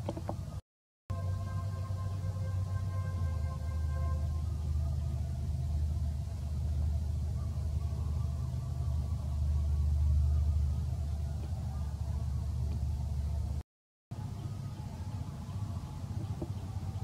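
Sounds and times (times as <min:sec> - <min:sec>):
low rumble: 0:00.4 - 0:13.6.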